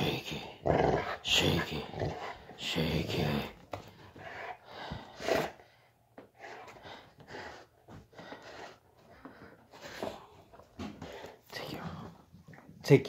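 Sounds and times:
dog breathing hard through nose: 6.4 - 11.4.

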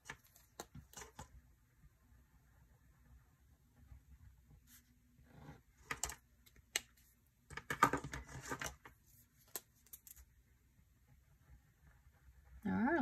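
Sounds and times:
plastic pens clicking and clattering: 5.8 - 6.9, 7.5 - 10.2.

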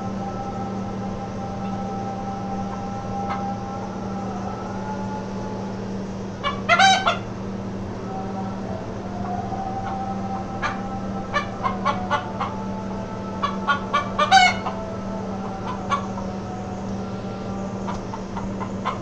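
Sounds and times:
steady low hum: 0.0 - 19.0
chicken clucking: 2.7 - 3.5, 6.4 - 7.3, 8.1 - 16.6, 17.6 - 19.0.

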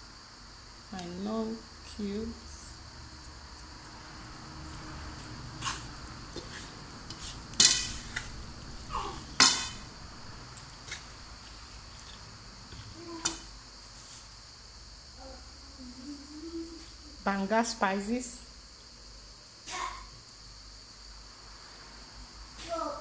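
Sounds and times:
wooden spoon stirring meat in pan: 4.3 - 14.4.

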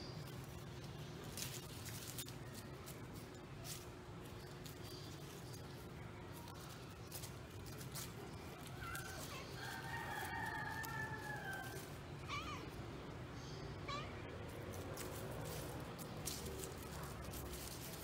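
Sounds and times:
cat meowing: 12.2 - 12.8, 13.8 - 14.3
cat chirping: 12.2 - 12.9, 13.6 - 14.3.

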